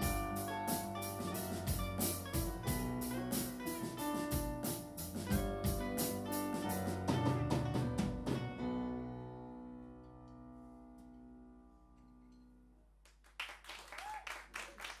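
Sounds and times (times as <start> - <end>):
live rock band playing: 0.0 - 8.7
audience clapping and cheering: 13.0 - 15.0.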